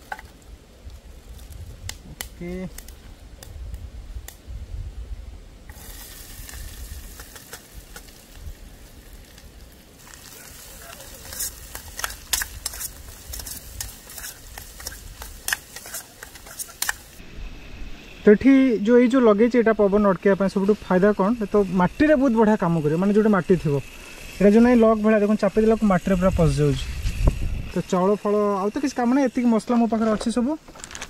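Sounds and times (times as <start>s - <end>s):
food sizzling in a pot: 5.7s - 30.0s
spatula scraping a pot: 11.2s - 17.1s.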